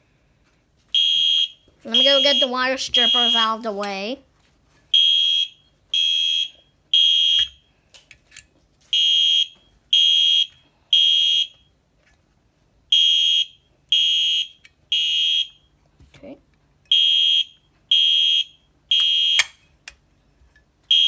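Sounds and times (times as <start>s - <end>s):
fire alarm horn blasts: 1.0s - 3.6s, 5.0s - 7.6s, 8.9s - 11.6s, 12.9s - 15.6s, 16.9s - 19.5s.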